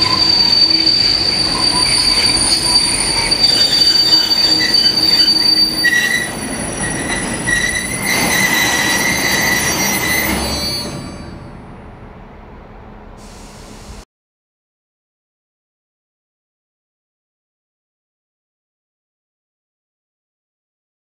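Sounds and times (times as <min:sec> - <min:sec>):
train wheels squealing on rails: 0:00.0 - 0:11.8
rumble of freight wagons: 0:00.0 - 0:14.0.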